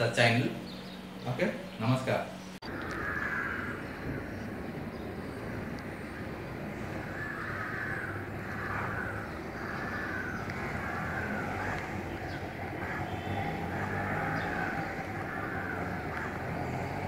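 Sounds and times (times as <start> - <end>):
low background rumble: 0.0 - 17.0
crows cawing: 2.6 - 4.4, 6.6 - 17.0.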